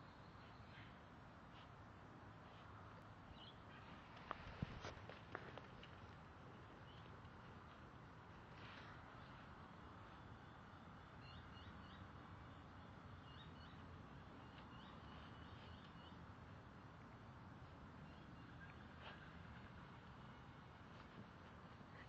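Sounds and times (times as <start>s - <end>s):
small birds chirping: 9.0s - 16.6s.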